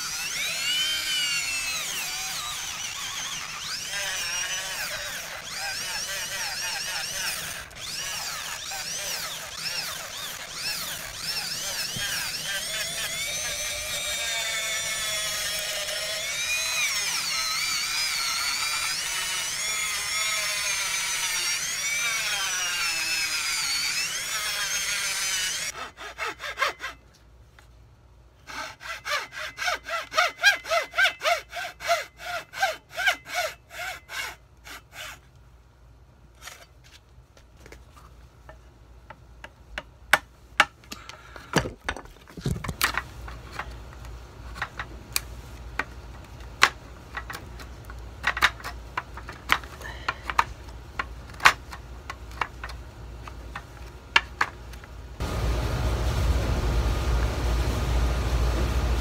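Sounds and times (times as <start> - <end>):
electric rotary tool grinding wood: 0.0 - 25.8
hand saw cutting wood: 0.0 - 27.0, 28.4 - 35.3.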